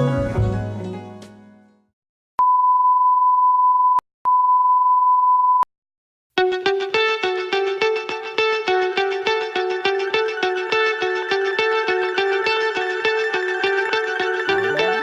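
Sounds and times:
music with plucked notes: 6.4 - 15.0.

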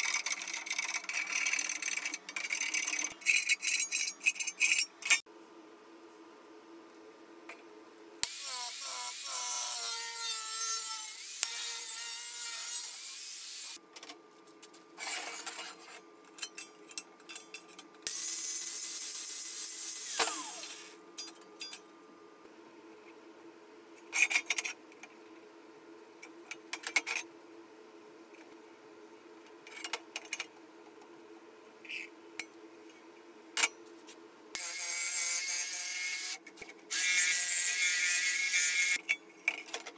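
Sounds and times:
rasping scraping on steel: 0.4 - 5.2.

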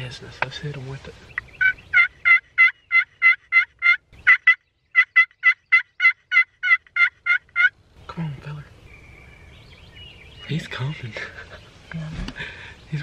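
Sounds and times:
turkey call hen yelps: 1.6 - 7.8.

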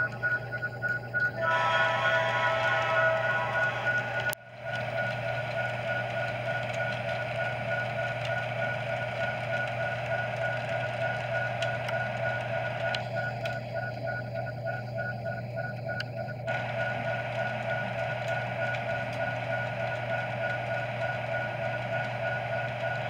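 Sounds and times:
high pulsing tone: 0.0 - 9.3
model train motor hum: 1.4 - 6.7.

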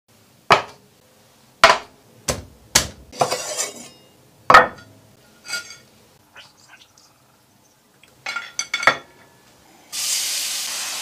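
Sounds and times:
knife chopping on cutting board: 0.5 - 0.8, 1.6 - 3.3.

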